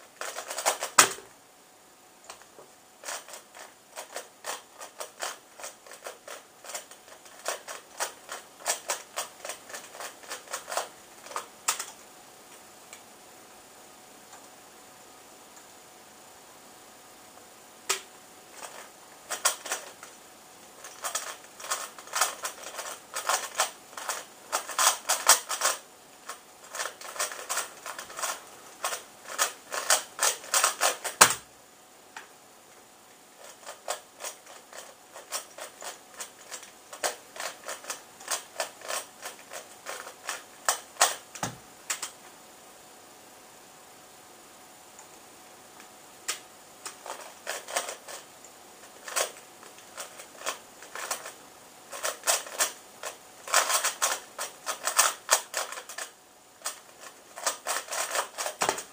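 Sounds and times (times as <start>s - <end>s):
puzzle cube plastic clicking: 2.3s - 12.0s, 20.8s - 31.4s, 49.0s - 58.9s.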